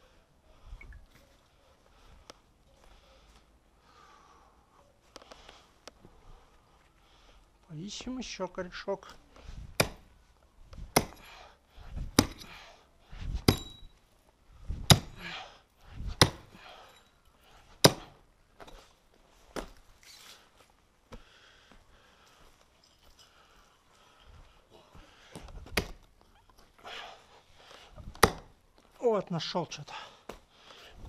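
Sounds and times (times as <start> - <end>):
axe chopping into roots: 9.8 - 10.1, 10.8 - 11.3, 12.0 - 12.5, 13.4 - 13.8, 14.8 - 15.3, 16.2 - 16.6, 17.8 - 18.2, 25.7 - 26.0, 28.1 - 28.5.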